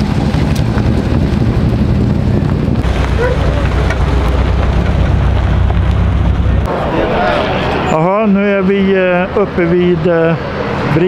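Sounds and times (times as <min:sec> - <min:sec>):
car engines rumbling: 0:00.0 - 0:11.0
faint voices: 0:02.9 - 0:04.5, 0:06.2 - 0:09.7.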